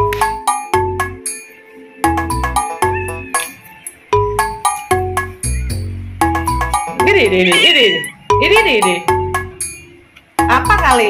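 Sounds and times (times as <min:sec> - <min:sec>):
steady bass line: 0:04.2 - 0:09.6.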